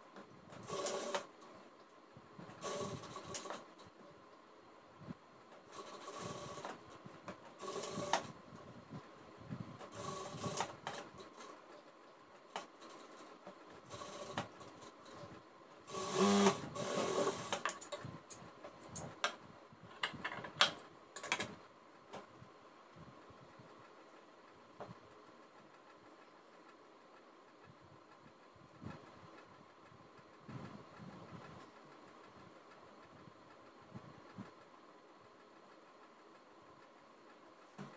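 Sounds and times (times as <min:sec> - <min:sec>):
sewing machine stitching: 0:00.5 - 0:01.3, 0:02.5 - 0:03.7, 0:05.6 - 0:06.8, 0:07.4 - 0:08.4, 0:09.8 - 0:11.6, 0:12.8 - 0:15.2, 0:15.9 - 0:17.8.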